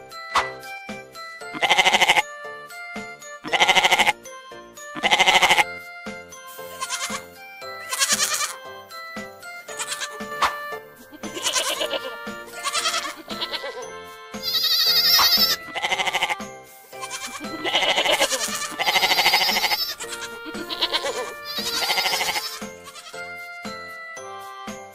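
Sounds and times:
light background tune: 0.0s - 24.9s
goat bleating: 1.5s - 2.3s, 3.4s - 4.2s, 5.0s - 5.7s, 6.6s - 8.6s, 9.7s - 10.4s, 11.0s - 23.4s.

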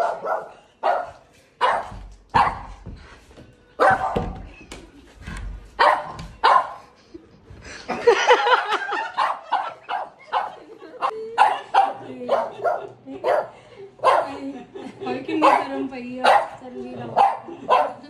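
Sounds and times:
dog barking: 0.0s - 2.8s, 3.8s - 4.4s, 5.8s - 6.9s, 9.0s - 14.4s, 15.4s - 18.0s.

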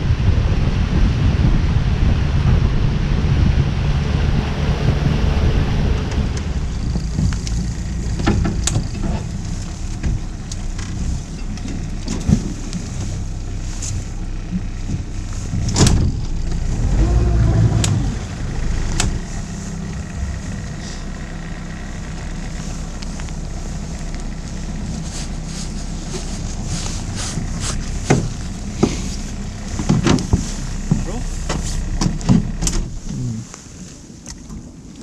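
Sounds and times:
boat motor running: 0.0s - 34.9s
wind and water noise: 0.0s - 35.0s
sharp clicks and knocks: 6.1s - 12.8s, 14.6s - 16.7s, 29.8s - 32.9s.

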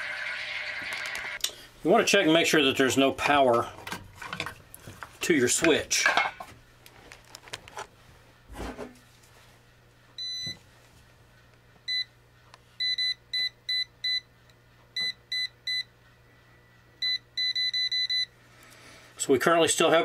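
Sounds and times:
voltage tester beeping: 17.0s - 18.3s.

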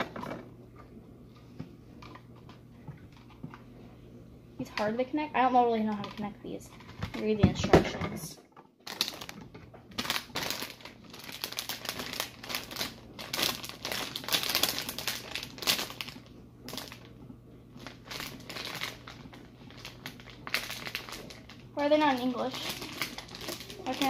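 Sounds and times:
plastic bag crinkling: 5.6s - 7.4s, 8.8s - 24.0s.

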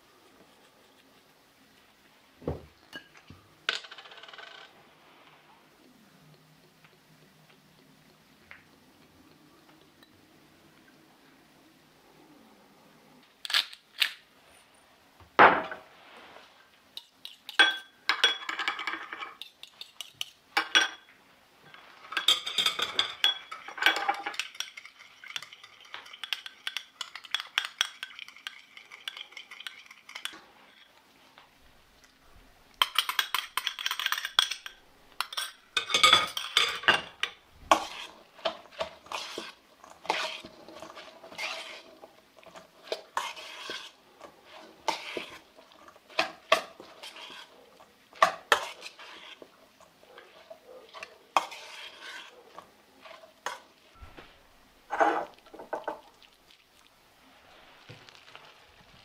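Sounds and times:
spoon stirring shredded cabbage: 16.9s - 32.0s, 32.7s - 54.0s, 54.9s - 59.0s
spoon clinking in glass bowl: 17.0s - 21.1s, 21.7s - 30.4s, 32.8s - 37.3s.

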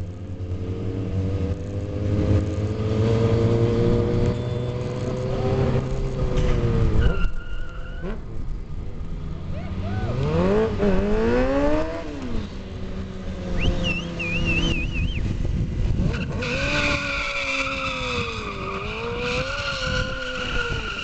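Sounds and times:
motorcycle engine revving: 0.0s - 7.1s, 9.4s - 21.0s
tyre squealing: 16.1s - 21.0s.

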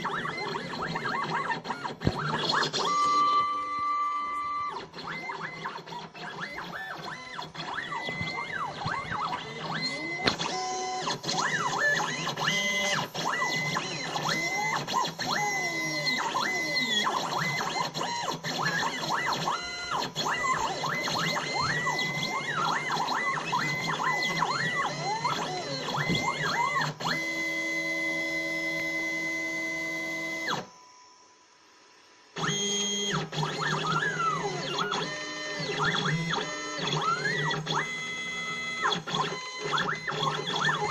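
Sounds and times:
stepper motors whining: 0.0s - 30.6s.

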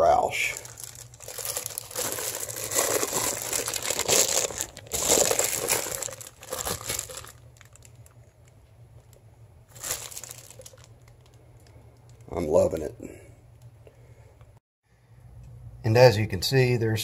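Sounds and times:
plastic bag crinkling: 0.0s - 9.1s, 9.7s - 12.9s.

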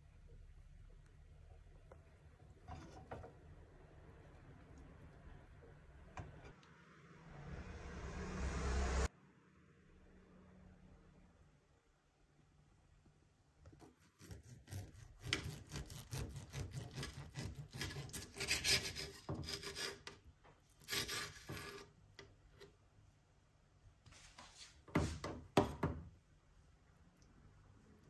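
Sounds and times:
knife sawing through meat: 14.0s - 20.1s, 20.8s - 21.9s
blade rasping on slate board: 14.0s - 20.2s, 20.8s - 22.0s.

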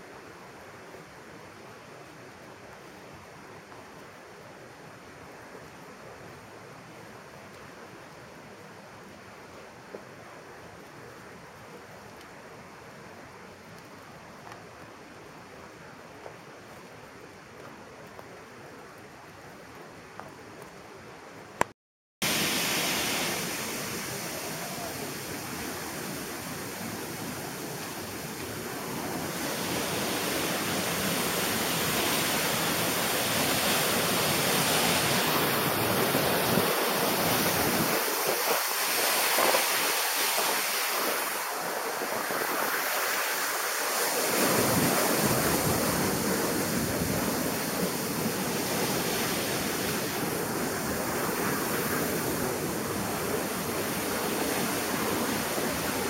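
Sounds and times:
waterfall roaring: 22.2s - 56.0s.

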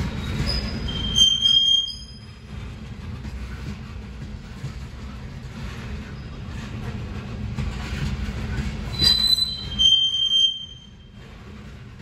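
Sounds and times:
steel wheels squealing: 0.0s - 2.5s, 8.8s - 11.5s.

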